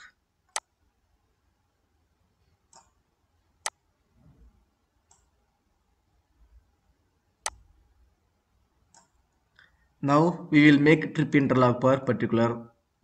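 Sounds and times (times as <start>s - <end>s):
computer mouse clicks: 2.7s - 3.0s, 5.0s - 5.4s, 8.8s - 9.7s.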